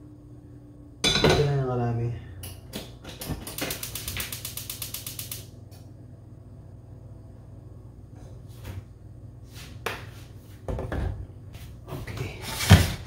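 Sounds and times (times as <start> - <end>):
stove igniter clicking: 2.4 - 5.5.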